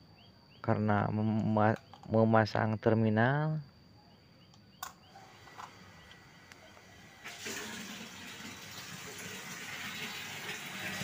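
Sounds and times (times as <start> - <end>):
electric water pump running: 5.1 - 11.0.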